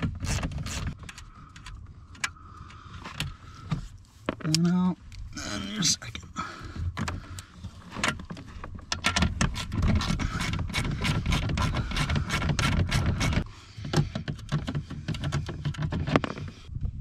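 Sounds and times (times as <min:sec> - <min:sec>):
hand tool clicking and scraping: 0:00.0 - 0:03.4, 0:07.0 - 0:16.6.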